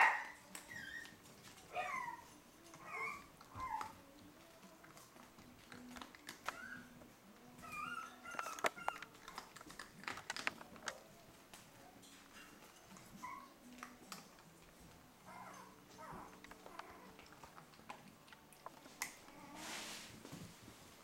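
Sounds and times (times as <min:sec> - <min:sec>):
puppy whining: 0:00.0 - 0:10.2, 0:12.3 - 0:20.0
puppy crunching dry kibble: 0:02.6 - 0:11.2, 0:12.0 - 0:19.4
kibble clicking against bowl: 0:07.7 - 0:11.1, 0:15.5 - 0:19.2.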